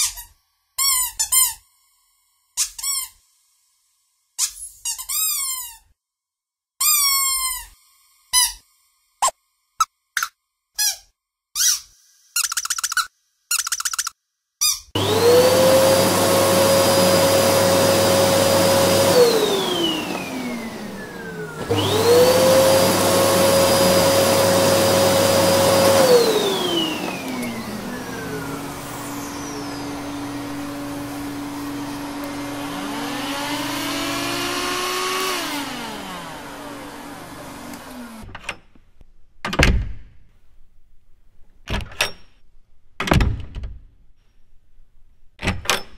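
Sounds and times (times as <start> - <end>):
rubber chicken toy squealing: 6.8 - 7.8
vacuum cleaner whining: 15.0 - 38.3.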